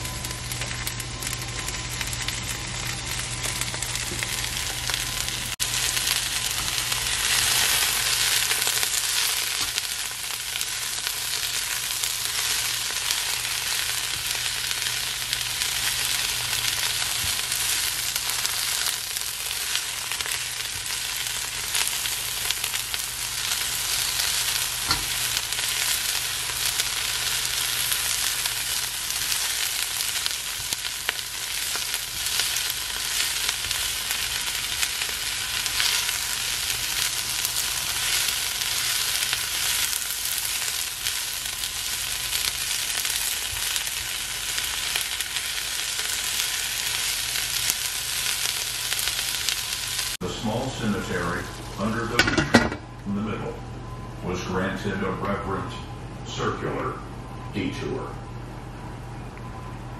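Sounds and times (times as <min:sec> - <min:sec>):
vegetables sizzling in a wok: 0:00.0 - 0:52.9.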